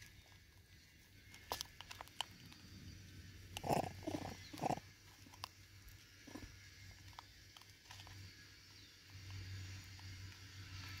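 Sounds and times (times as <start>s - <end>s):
monkey grunting: 3.6s - 4.9s.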